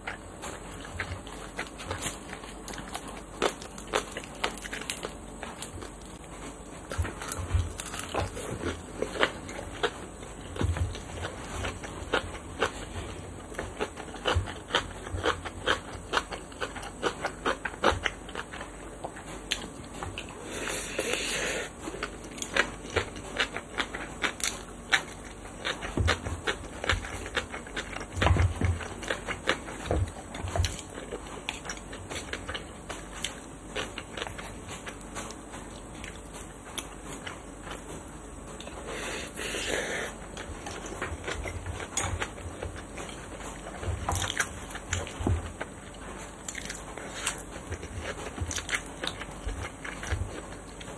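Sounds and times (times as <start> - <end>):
breathy hiss: 20.3 - 21.8, 38.8 - 40.3.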